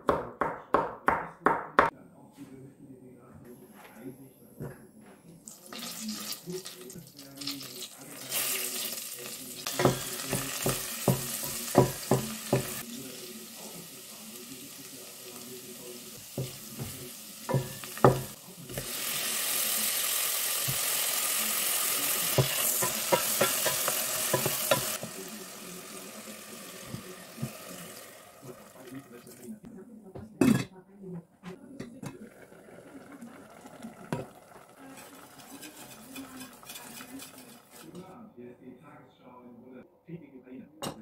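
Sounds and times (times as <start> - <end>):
garlic sizzling in butter: 5.5 - 29.4, 32.2 - 38.0
wooden spoon knocking on pot: 9.7 - 12.8, 16.4 - 18.3, 22.4 - 25.1.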